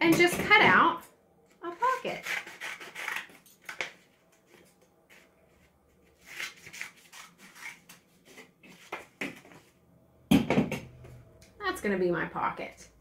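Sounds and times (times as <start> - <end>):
scissors snipping paper: 1.8 - 3.9
paper rustling: 1.8 - 9.1.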